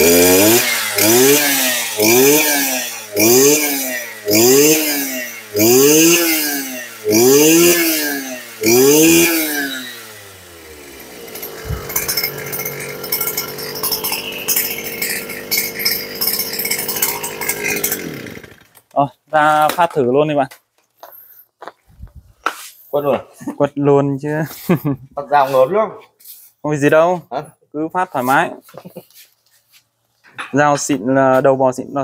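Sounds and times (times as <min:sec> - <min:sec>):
brush cutter engine idling: 0:00.0 - 0:18.9
brush cutter engine revving: 0:00.0 - 0:18.9.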